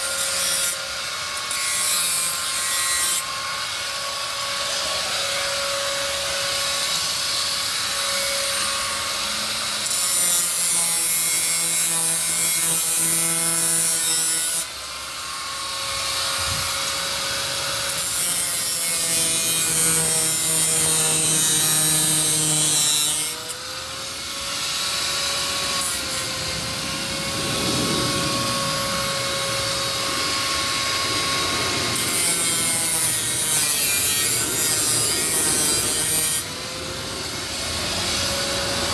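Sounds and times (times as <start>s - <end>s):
grinder disc grinding metal: 0.0s - 38.9s
angle grinder motor whining: 11.8s - 38.9s.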